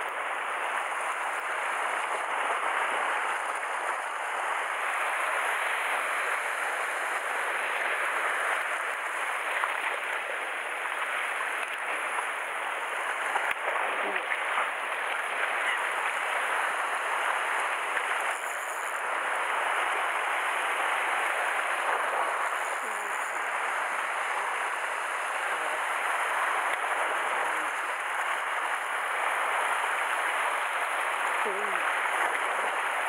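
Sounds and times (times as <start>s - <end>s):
sea waves washing over rocks: 0.0s - 33.0s.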